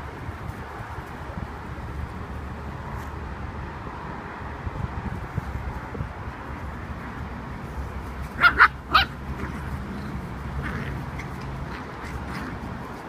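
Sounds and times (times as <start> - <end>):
puppy barking: 8.3 - 12.6.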